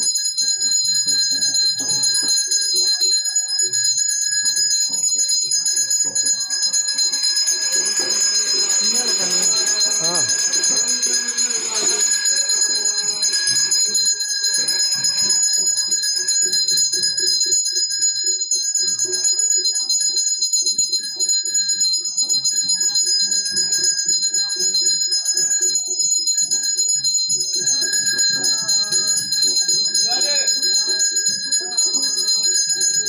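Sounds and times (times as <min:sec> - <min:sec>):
bells ringing: 0:00.0 - 0:33.0
fast drum-like strokes: 0:06.2 - 0:15.4.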